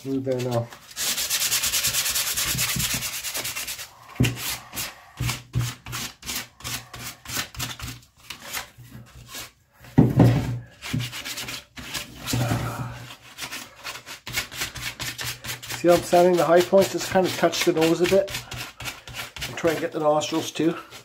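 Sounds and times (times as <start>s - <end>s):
sandpaper rubbing on wood: 0.0s - 9.6s, 10.8s - 21.0s.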